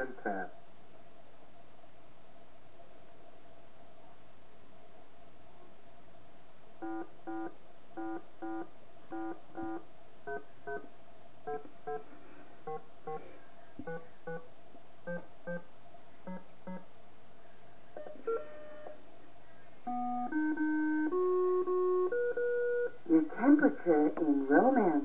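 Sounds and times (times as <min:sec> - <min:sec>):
electronic tune of held notes: 0:18.0 - 0:19.0, 0:19.8 - 0:23.0.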